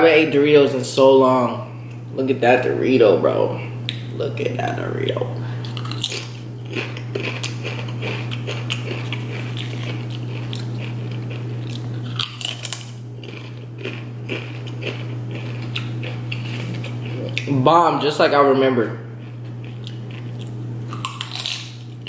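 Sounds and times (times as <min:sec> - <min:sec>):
steady low hum: 0:00.0 - 0:22.0
crunching chips: 0:05.6 - 0:17.5, 0:19.2 - 0:22.0.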